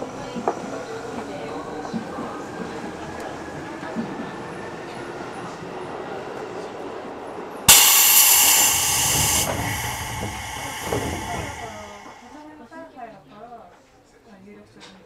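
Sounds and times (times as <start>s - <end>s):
compressed air hiss: 7.7s - 12.3s
train low steady hum: 7.7s - 12.4s.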